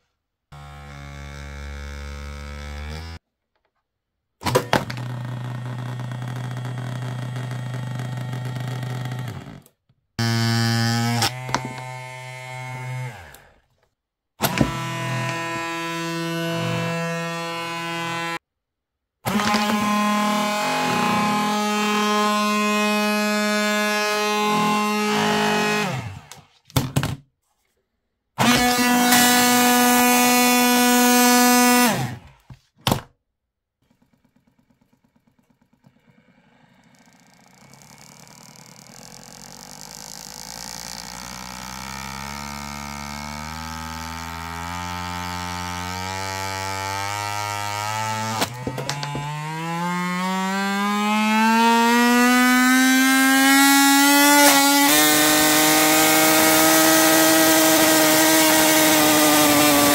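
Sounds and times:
massage gun motor buzzing: 0.5 - 3.2, 4.9 - 13.6, 14.4 - 18.4, 19.3 - 26.4, 34.0 - 46.2
electric motor humming: 0.6 - 3.2, 10.2 - 13.6, 14.4 - 18.4, 19.3 - 26.4
motor spinning down: 14.4 - 18.4, 19.3 - 26.4, 34.0 - 46.1.

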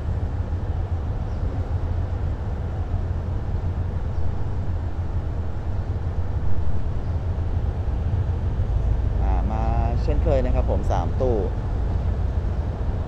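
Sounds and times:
diesel locomotive rumbling: 0.0 - 13.0.

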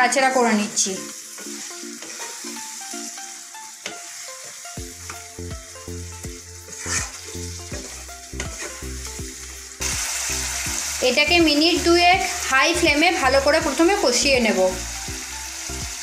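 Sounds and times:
chicken sizzling in oil: 0.0 - 16.0
quiet background music: 0.0 - 16.0
spatula stirring and scraping: 1.2 - 5.5, 6.2 - 9.5.

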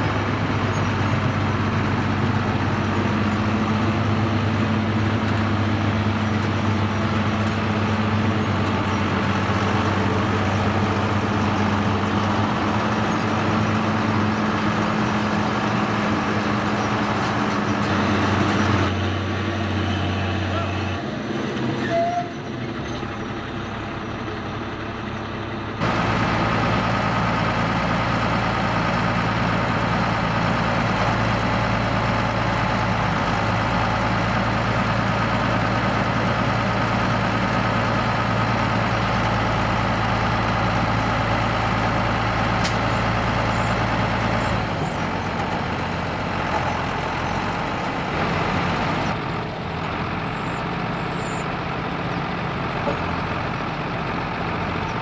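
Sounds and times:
tractor diesel engine under load: 0.0 - 55.0
dump trailer tipping soil: 25.8 - 55.0.

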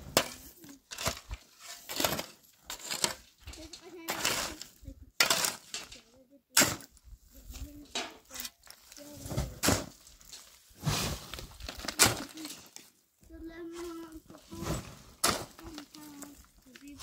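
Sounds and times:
digging tool striking stony ground: 0.0 - 7.0, 7.9 - 12.8, 14.6 - 16.3.

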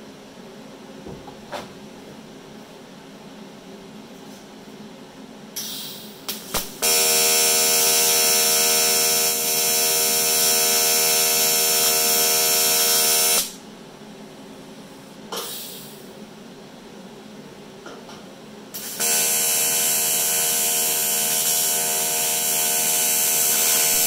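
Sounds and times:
short gas hiss: 5.6 - 6.2, 15.4 - 16.0
welding arc buzzing: 6.3 - 13.6, 18.8 - 24.0.

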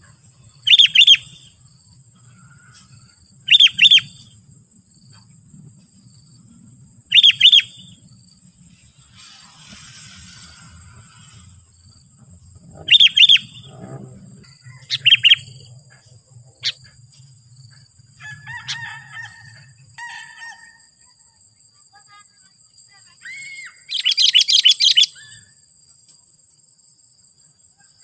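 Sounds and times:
bird calling: 0.0 - 1.5, 2.3 - 4.3, 7.1 - 7.9, 12.5 - 16.0, 23.2 - 25.5.

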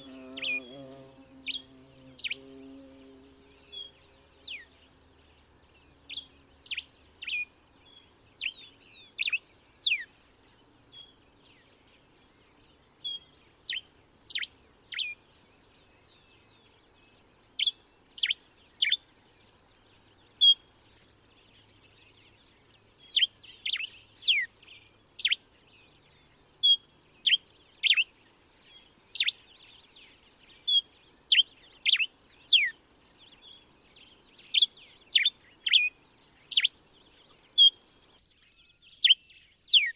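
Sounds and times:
thin high buzz: 0.0 - 4.4
finch singing: 0.0 - 5.3, 26.6 - 39.9.

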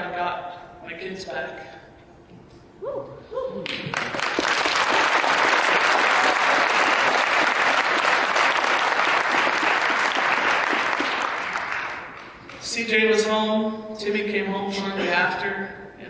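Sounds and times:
audience applauding: 3.6 - 12.6.

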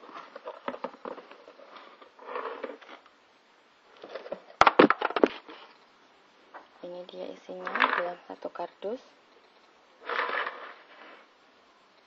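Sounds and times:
plastic containers knocking: 4.2 - 5.4.

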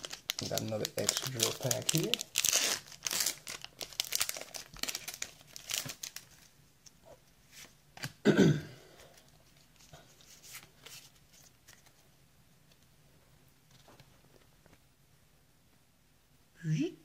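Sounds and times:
foil wrapper crinkling and tearing: 0.0 - 6.5
person coughing: 8.2 - 8.9
cards being handled: 9.1 - 12.0.

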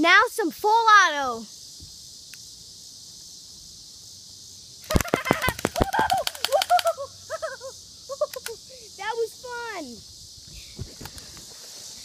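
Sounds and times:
airsoft pistol rapid clicks: 4.8 - 7.0.

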